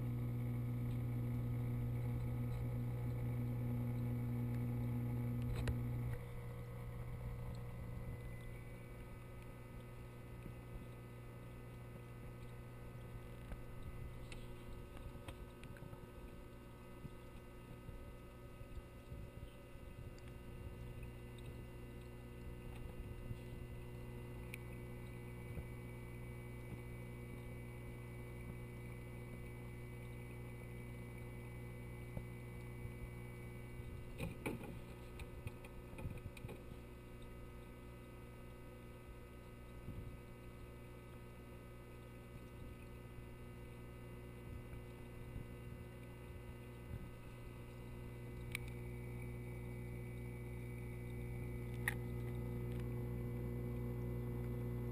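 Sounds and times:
aquarium equipment hum: 0:00.0 - 0:54.9
faint clicks: 0:05.4 - 0:23.5, 0:32.2 - 0:54.6.

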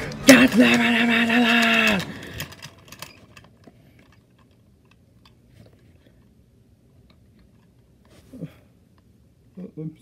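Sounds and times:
toy trucks clicking and tapping: 0:00.0 - 0:05.4.

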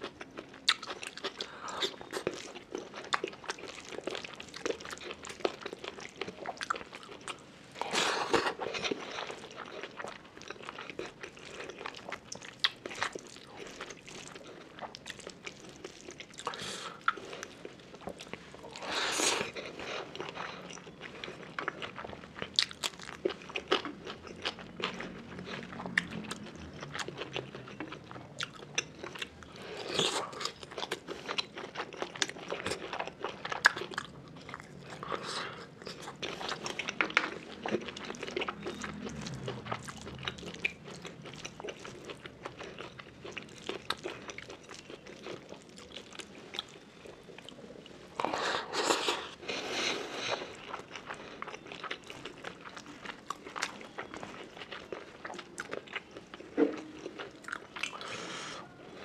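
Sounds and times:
wet chewing and mouth smacks: 0:00.0 - 0:49.4.

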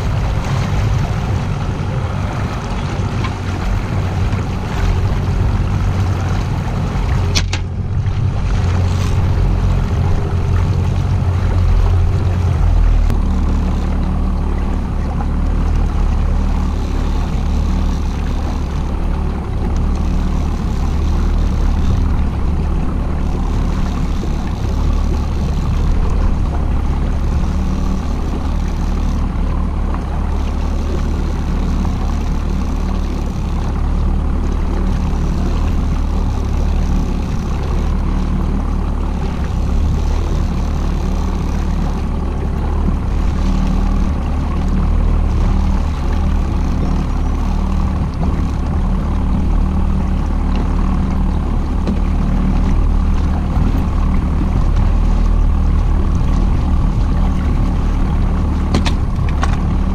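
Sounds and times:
boat motor humming: 0:00.0 - 0:59.9
water noise: 0:00.0 - 0:59.9.

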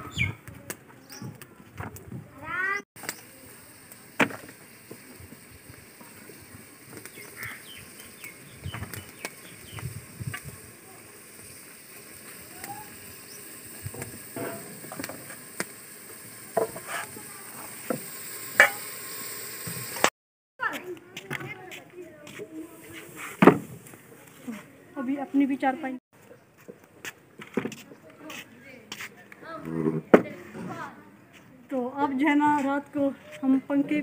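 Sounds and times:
vegetables sizzling in a pot: 0:03.0 - 0:20.1.

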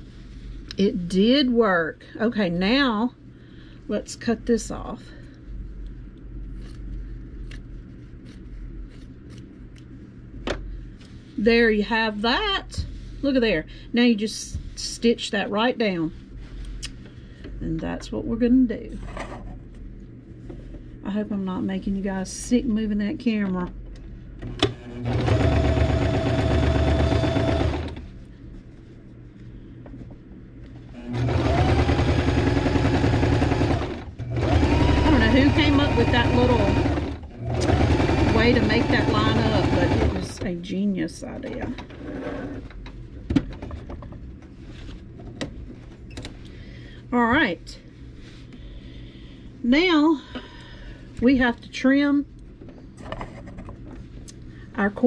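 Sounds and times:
low steady hum: 0:00.0 - 0:55.0
sewing machine motor whine: 0:24.5 - 0:28.0, 0:31.0 - 0:40.4.

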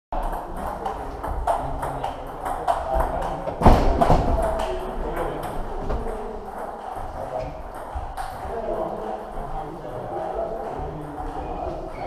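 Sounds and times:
table tennis balls clicking: 0:00.2 - 0:09.4
loud thud: 0:03.6 - 0:04.5.

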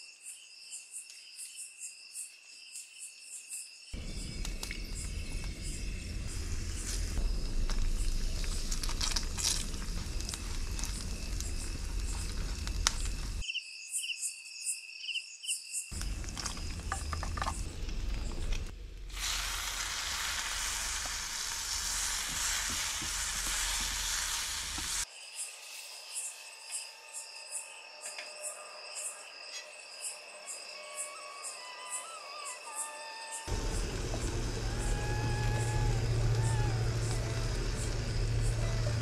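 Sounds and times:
crickets chirping: 0:00.0 - 0:18.7, 0:19.3 - 0:39.0
spices sizzling in hot oil: 0:19.1 - 0:26.4.

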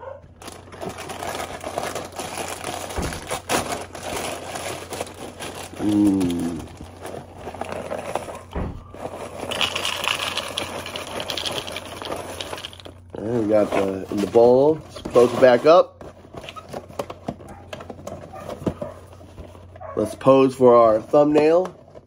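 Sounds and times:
cardboard box and bag crinkling: 0:00.3 - 0:22.0
cereal rustling in box: 0:00.4 - 0:17.2
short low grunt: 0:05.8 - 0:06.8.

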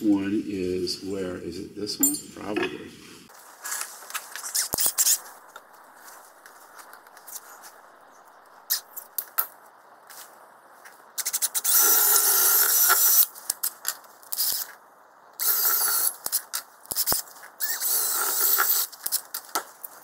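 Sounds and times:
cordless drill boring wood: 0:11.6 - 0:13.2, 0:15.4 - 0:16.1, 0:17.6 - 0:18.9.

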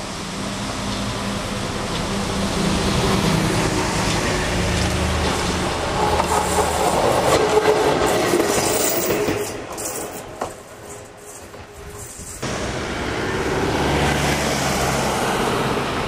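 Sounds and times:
diesel dump truck passing: 0:00.0 - 0:08.1, 0:12.4 - 0:16.0
electric railcar running past: 0:00.0 - 0:16.0
train wheels clicking over rail joints: 0:00.8 - 0:12.4.

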